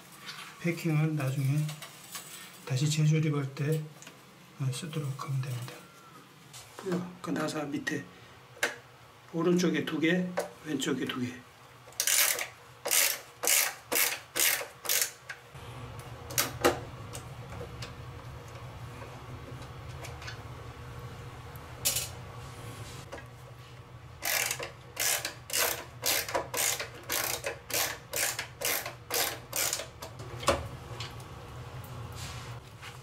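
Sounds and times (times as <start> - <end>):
ratcheting screwdriver clicking: 12.0 - 15.2, 24.2 - 29.9
low steady hum: 15.5 - 33.0.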